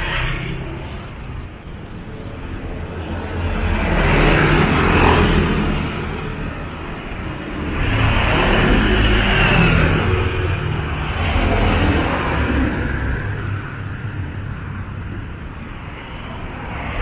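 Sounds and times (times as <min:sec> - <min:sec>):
vehicle passing by: 0:03.3 - 0:06.2.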